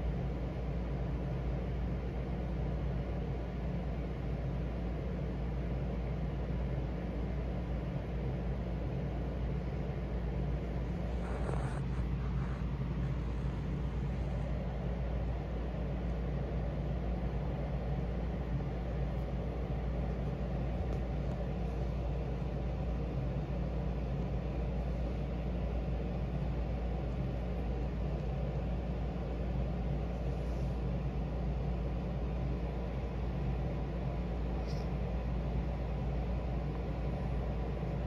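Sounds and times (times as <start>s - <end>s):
cat purring: 10.6s - 14.8s.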